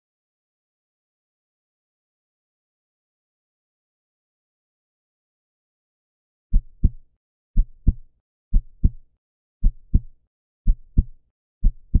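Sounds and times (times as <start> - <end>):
heartbeat thumps: 6.6 - 7.0, 7.6 - 9.0, 9.6 - 12.0.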